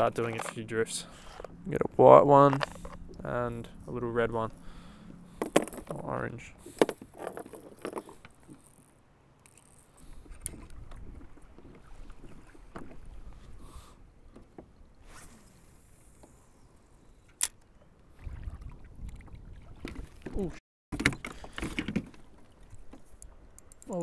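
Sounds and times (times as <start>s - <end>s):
fishing gear clicks: 6.6s - 10.8s, 21.0s - 24.0s
water sloshing against kayak hull: 10.0s - 14.8s, 17.8s - 23.5s.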